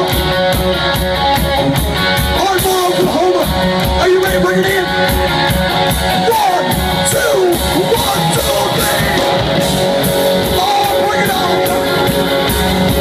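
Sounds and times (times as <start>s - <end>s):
electric guitar: 0.0s - 13.0s
steady drum beat: 0.0s - 13.0s
man singing: 6.1s - 9.5s, 10.4s - 12.1s.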